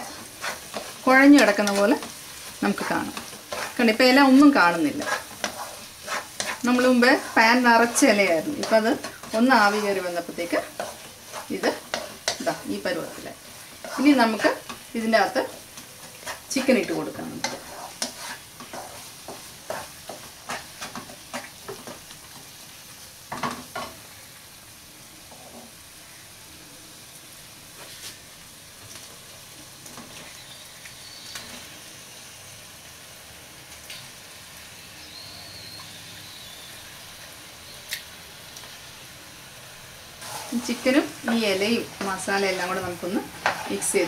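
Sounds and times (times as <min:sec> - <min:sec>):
spatula scraping and tapping pan: 0:00.0 - 0:22.6, 0:23.3 - 0:24.0, 0:40.2 - 0:44.0
sizzling: 0:00.0 - 0:44.0.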